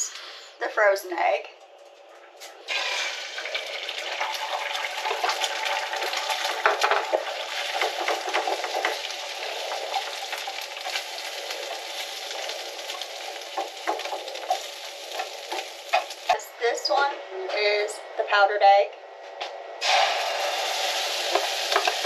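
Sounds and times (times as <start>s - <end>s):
egg sizzling in frying pan: 2.7s - 16.4s, 19.8s - 22.0s.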